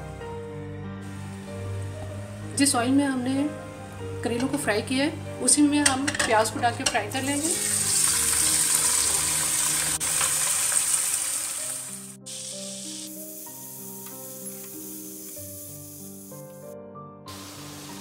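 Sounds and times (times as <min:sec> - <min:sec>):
background music: 0:00.0 - 0:18.0
onions sizzling in hot oil: 0:01.0 - 0:03.2, 0:06.0 - 0:16.6, 0:17.3 - 0:18.0.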